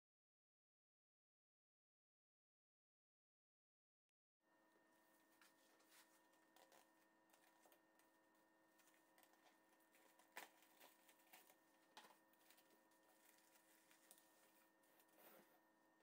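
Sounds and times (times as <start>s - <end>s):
plastic cling film crinkling: 5.4s - 15.3s.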